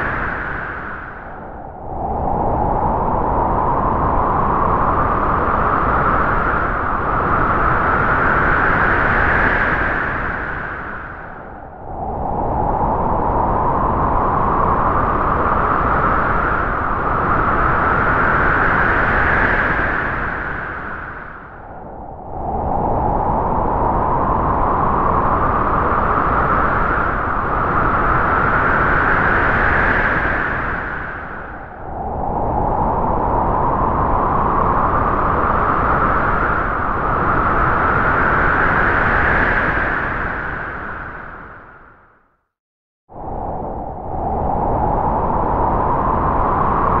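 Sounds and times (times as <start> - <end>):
howling wind: 0.0 - 42.3, 43.1 - 47.0.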